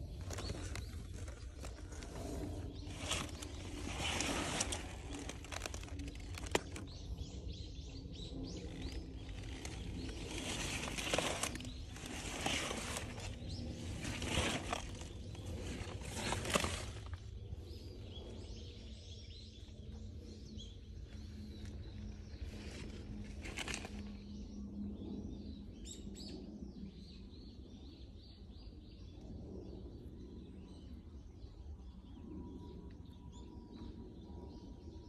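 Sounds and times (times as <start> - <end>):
wind rumble on microphone: 0.0 - 35.0
rustling bursts: 2.8 - 6.8, 8.8 - 17.2.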